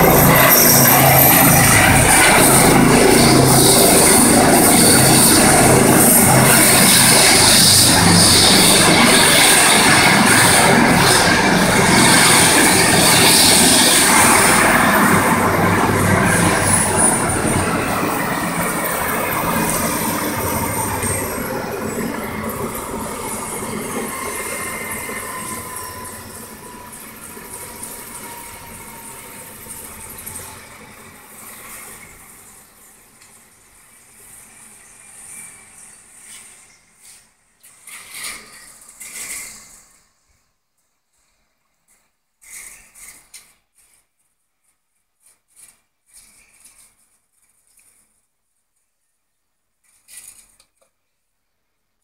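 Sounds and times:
helicopter turbine whining down: 0.0 - 36.3
helicopter rotor noise: 0.0 - 37.1.

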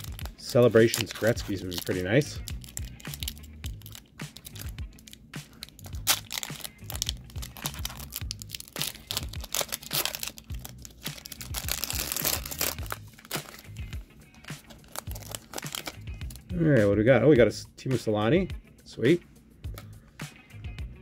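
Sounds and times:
foil pack crinkling and tearing: 0.0 - 13.7, 14.3 - 16.4
wrapper snap: 0.0 - 13.7, 14.4 - 16.4
background music with steady beat: 0.0 - 21.0.

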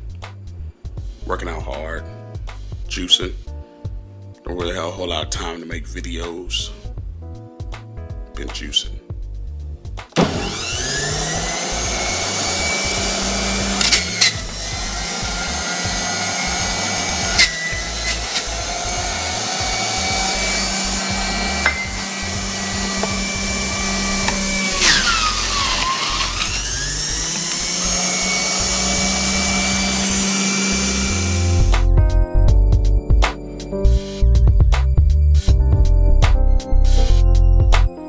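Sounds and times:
sharp knocks: 10.1 - 10.5
juicer motor humming and whining: 10.2 - 31.8.

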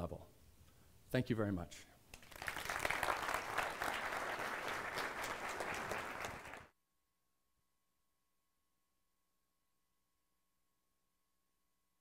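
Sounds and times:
audience applauding: 2.2 - 6.7.

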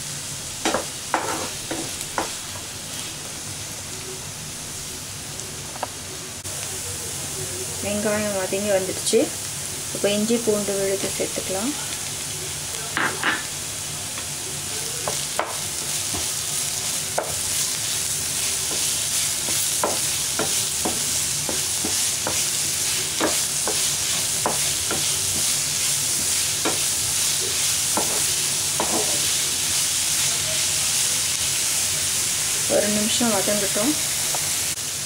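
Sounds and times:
onions sizzling in hot oil: 0.0 - 35.0
spatula scraping and tapping pan: 0.6 - 2.4, 18.6 - 29.3.

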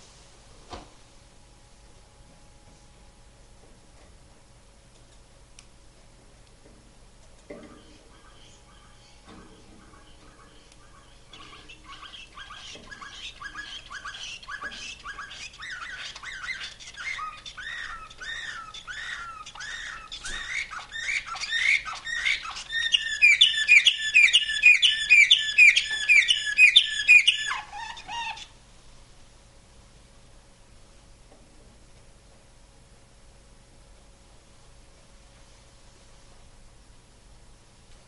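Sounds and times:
canary singing trills: 7.8 - 28.6.

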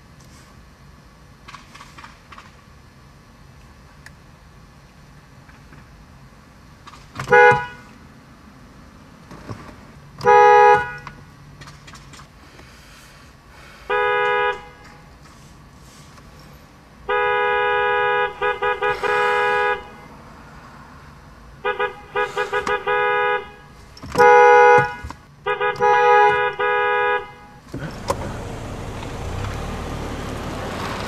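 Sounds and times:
car horns honking: 7.2 - 7.9, 10.2 - 11.2, 13.8 - 15.1, 17.0 - 20.3, 21.6 - 29.7.

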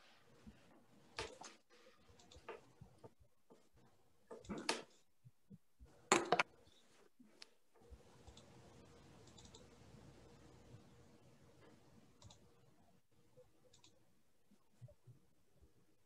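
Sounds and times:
faint steady hum: 5.3 - 16.0
computer clicks: 8.2 - 8.5, 9.2 - 9.7, 12.2 - 12.4, 13.7 - 14.0.

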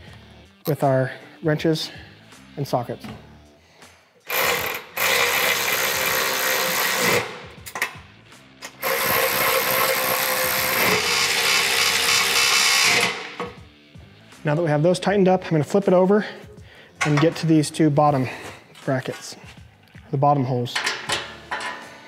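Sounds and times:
electric ratchet running: 4.2 - 7.5, 8.7 - 13.6.

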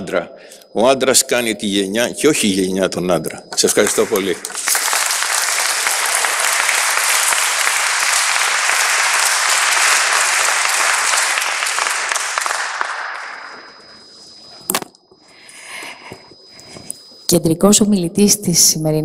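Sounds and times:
audience applauding: 3.6 - 14.2.

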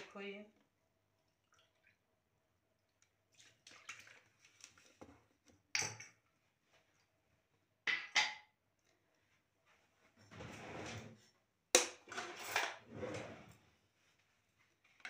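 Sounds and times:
water pouring into plastic bowl: 1.2 - 2.0, 2.9 - 5.0.

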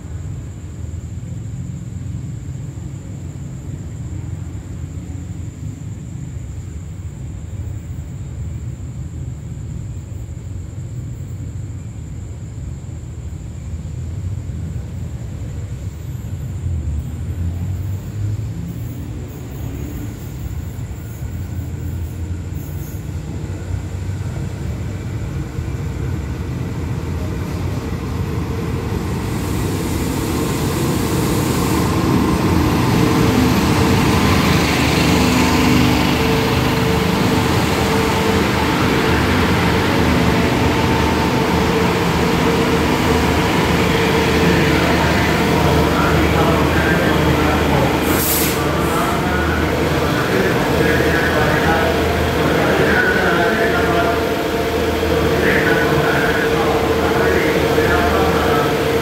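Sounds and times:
diesel train engine rumble: 0.0 - 59.0
high hiss: 19.0 - 59.0.

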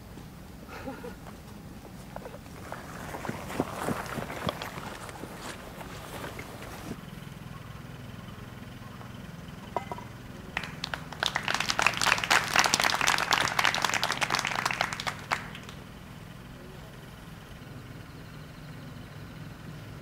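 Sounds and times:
crowd applauding: 2.3 - 7.0, 9.8 - 16.5.

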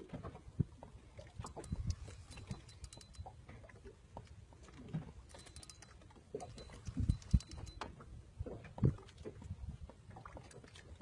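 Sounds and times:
fishing reel clicking: 1.4 - 3.3, 5.3 - 7.9.

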